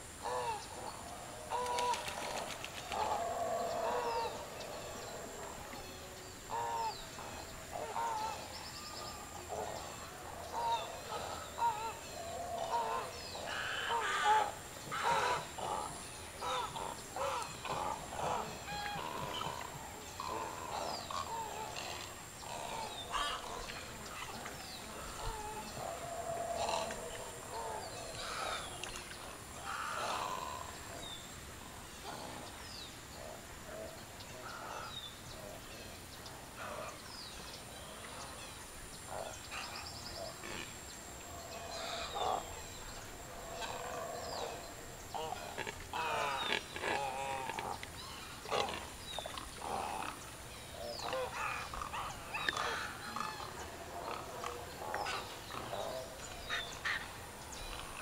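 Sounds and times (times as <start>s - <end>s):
waterbirds squawking and honking: 6.4s - 30.9s, 41.0s - 58.0s.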